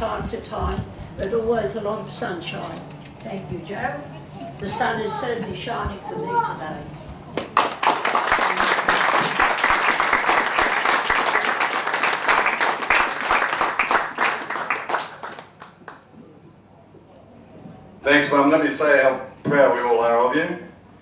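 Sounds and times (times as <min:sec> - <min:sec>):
people applauding: 0:07.4 - 0:16.2.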